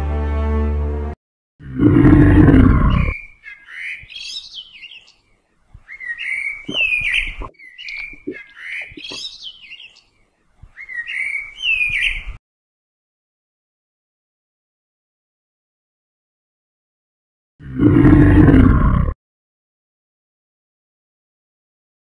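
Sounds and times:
dinosaur roar: 1.6s - 3.2s, 17.6s - 19.2s
high chirping squeaking calls: 2.9s - 5.2s, 5.8s - 10.1s, 10.8s - 12.3s.

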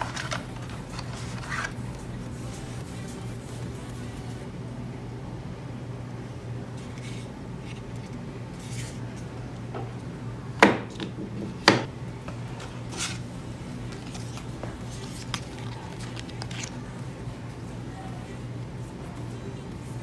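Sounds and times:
rustling cardboard and plastic: 0.0s - 4.1s, 12.8s - 16.9s.

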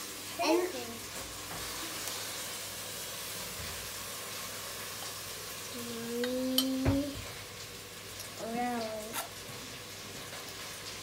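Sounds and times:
child humming: 5.7s - 7.2s.

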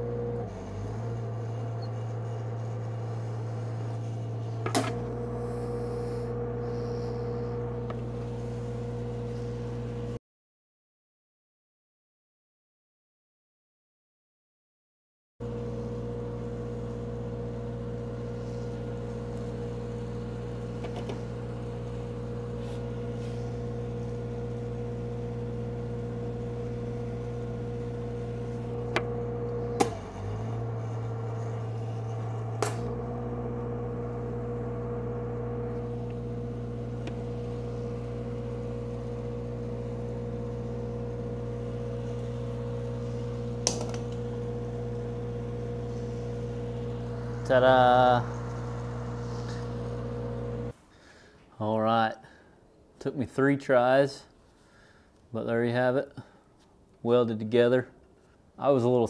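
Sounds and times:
welder engine running: 0.0s - 10.2s, 15.4s - 50.8s.

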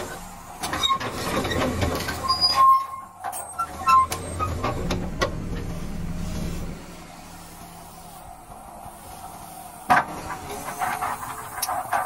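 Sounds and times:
heavy machinery engine hum: 0.0s - 12.0s
short high squeaks: 0.7s - 4.6s.

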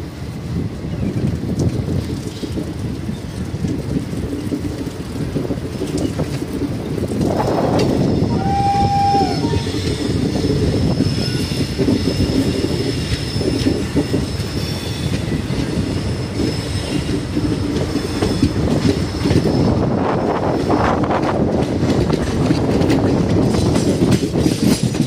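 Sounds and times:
train rumbling along track: 0.0s - 25.0s
high wheel squeal: 8.0s - 17.4s.

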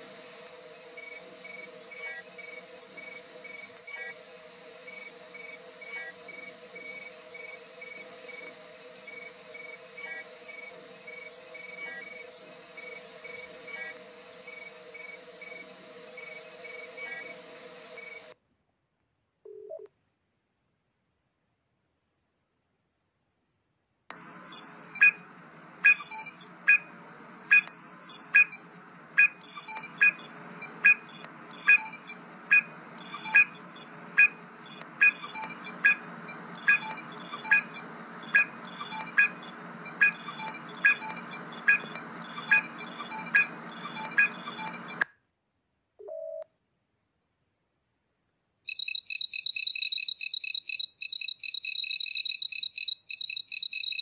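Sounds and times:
low steady hum: 0.0s - 18.4s, 24.1s - 45.0s
short electronic beeps: 24.4s - 45.0s
rapid warbling electronic trill: 24.5s - 44.9s.

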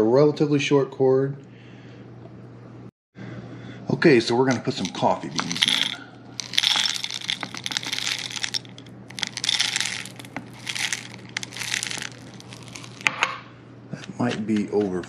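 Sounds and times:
coffee beans clattering into metal: 4.6s - 13.3s.

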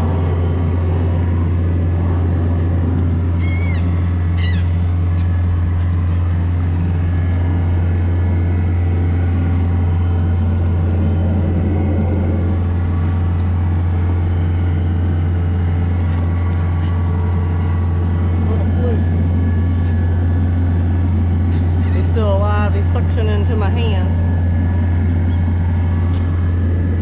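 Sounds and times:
outboard motor droning: 0.0s - 27.0s
gull calls: 3.4s - 6.0s.

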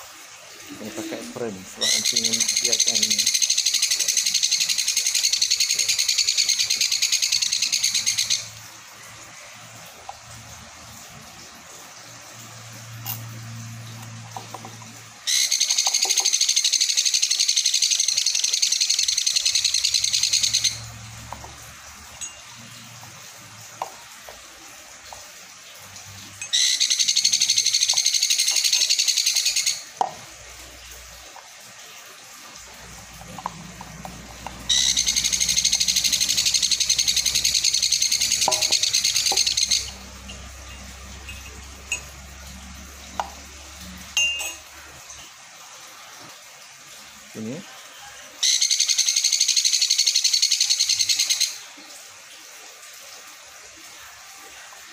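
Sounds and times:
parrot chick begging call: 34.7s - 40.1s.

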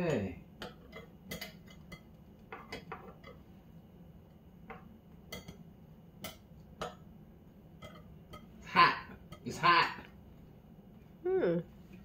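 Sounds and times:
faint kitchen taps and clicks: 0.0s - 3.5s, 4.3s - 5.6s.

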